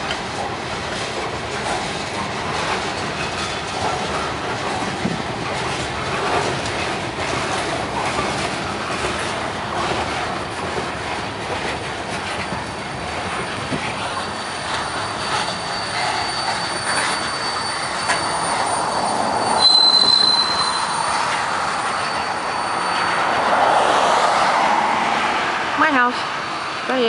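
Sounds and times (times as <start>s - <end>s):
freight train cars rolling past: 0.0s - 27.0s
high wheel squeal: 12.3s - 23.9s.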